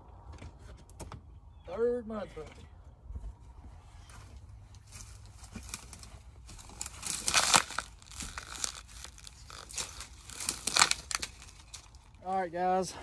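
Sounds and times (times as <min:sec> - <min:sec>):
dry grass and clothing rustling: 0:03.1 - 0:13.0.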